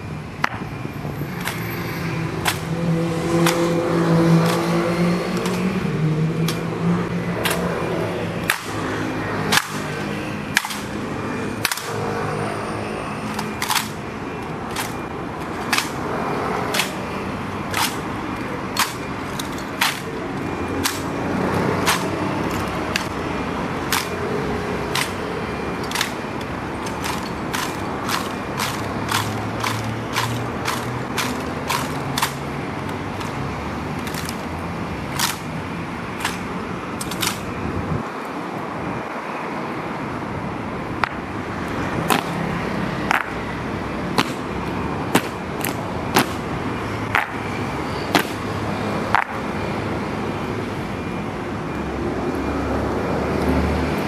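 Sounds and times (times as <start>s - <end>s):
low traffic rumble: 0.0s - 54.0s
boots marching: 44.1s - 44.5s.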